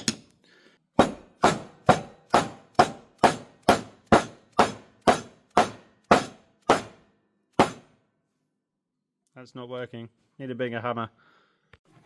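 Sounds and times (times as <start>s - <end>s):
hammer striking metal: 1.0s - 8.0s.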